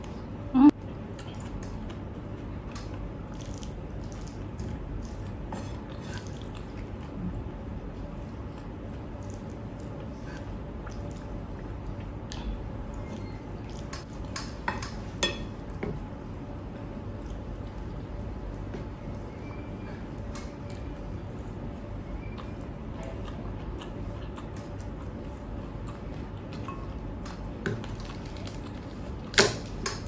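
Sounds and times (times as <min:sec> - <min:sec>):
person chewing: 0:01.1 - 0:07.2, 0:08.5 - 0:14.4, 0:20.0 - 0:29.4.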